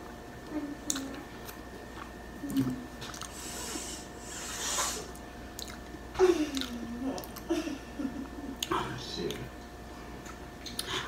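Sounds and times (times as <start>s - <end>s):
wet mouth clicks and lip smacks: 5.6s - 5.9s.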